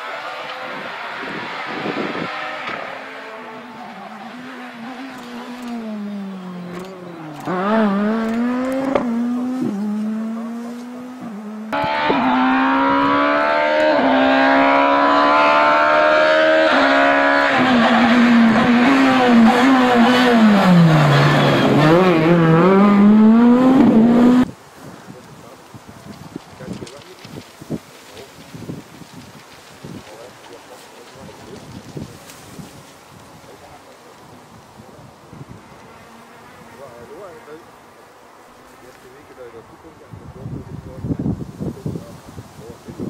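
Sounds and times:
rally car engine revving: 0.0 - 24.5.

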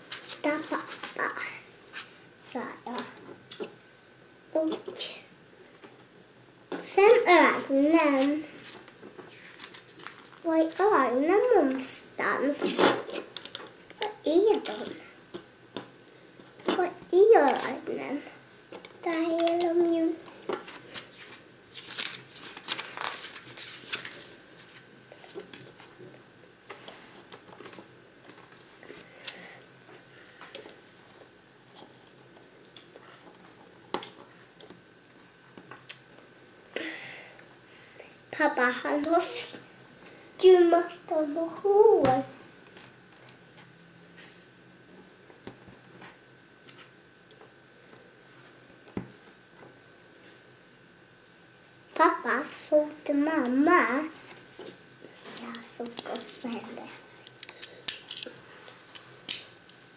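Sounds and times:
plastic pieces rustling: 20.5 - 25.8
plastic pieces clicking: 57.2 - 58.3.

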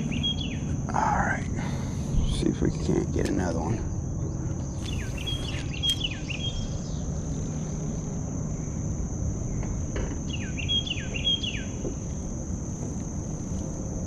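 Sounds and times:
bird calling: 0.0 - 0.8, 4.2 - 7.1, 10.2 - 11.9
insects droning: 0.0 - 14.0.

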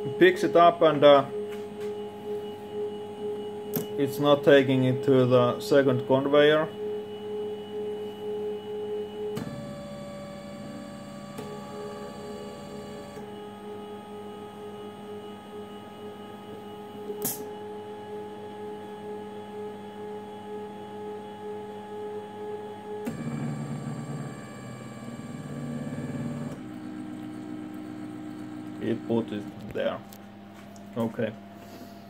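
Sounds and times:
sharp click: 17.2 - 17.5.

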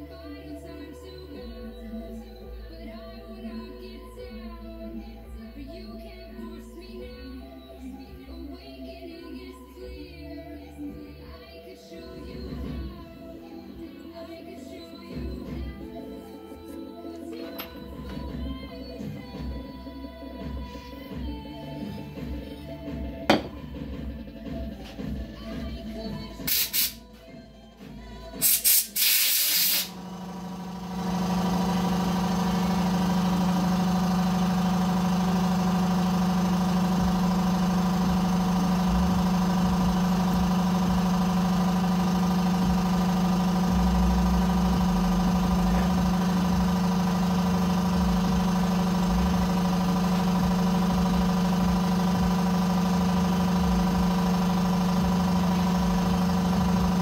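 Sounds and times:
steady machine hum: 29.4 - 57.0.

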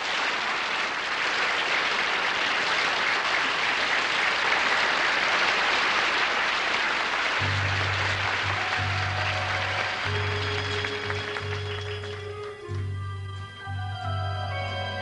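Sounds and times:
studio audience applauding: 0.0 - 15.0
band playing low held notes: 7.4 - 15.0.

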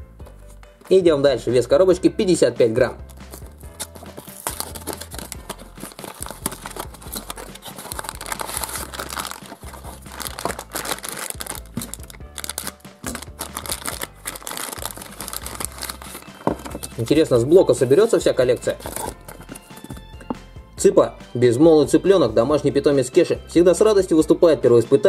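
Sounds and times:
background music: 0.0 - 25.0
plastic packet crinkling: 3.0 - 17.2, 17.8 - 20.0
cardboard box opening: 3.1 - 17.1, 18.6 - 20.0.

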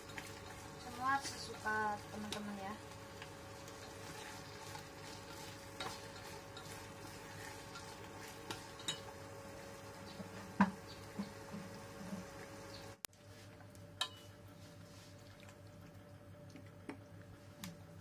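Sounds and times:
spatula stirring in saucepan: 0.0 - 12.3
faint sizzle: 0.0 - 18.0
spatula knocking on pan: 10.5 - 11.6.

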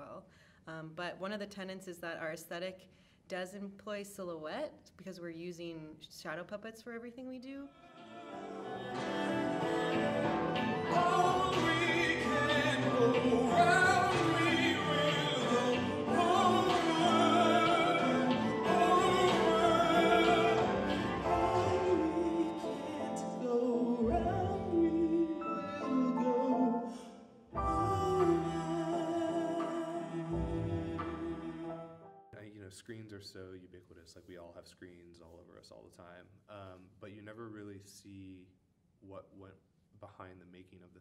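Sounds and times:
person singing with vibrato: 7.7 - 32.1
keyboards: 8.1 - 32.5.

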